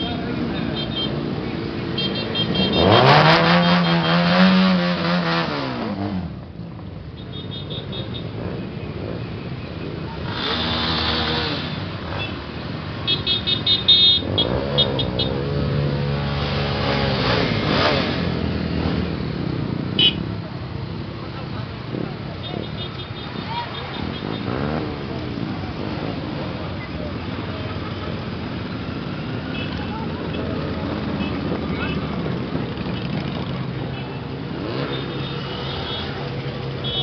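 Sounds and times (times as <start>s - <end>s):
motorcycles riding past: 7.8s - 37.0s.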